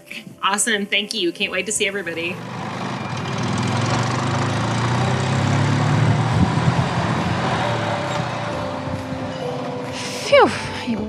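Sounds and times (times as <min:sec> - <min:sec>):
golf cart motor hum: 0:02.1 - 0:10.0.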